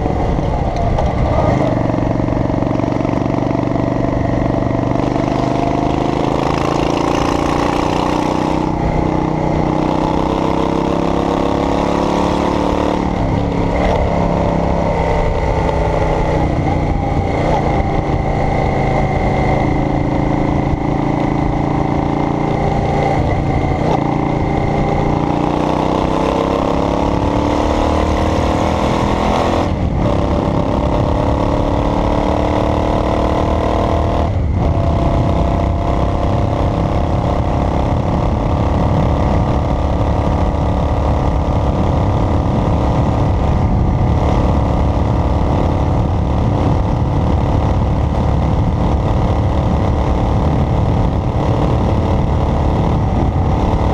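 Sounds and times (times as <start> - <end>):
car engine accelerating: 0.0 - 53.9
road rumble: 0.0 - 53.9.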